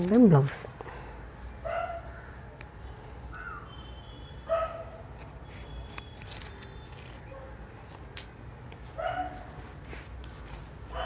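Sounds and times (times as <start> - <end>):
dog yipping: 4.4 - 5.0, 9.0 - 9.4
cloth rustling: 8.8 - 11.0.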